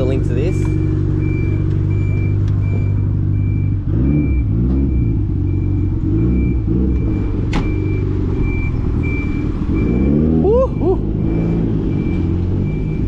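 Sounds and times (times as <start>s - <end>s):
vehicle engine idling and revving: 0.0s - 13.0s
high electronic beep: 1.2s - 13.0s
car door shutting: 7.4s - 7.9s.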